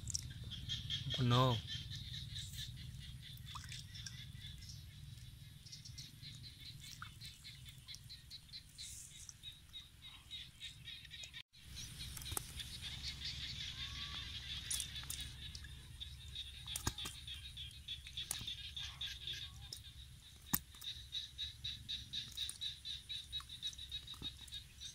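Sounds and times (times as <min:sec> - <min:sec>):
low steady rumble: 0:00.0 - 0:09.8.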